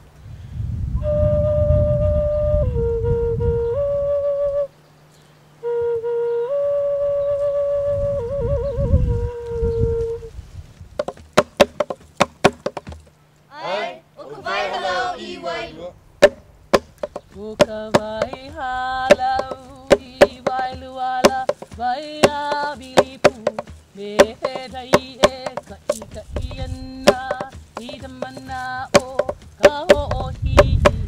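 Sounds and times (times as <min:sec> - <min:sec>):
hand strikes on gourd drum: 0:11.0 - 0:13.1, 0:16.2 - 0:31.0.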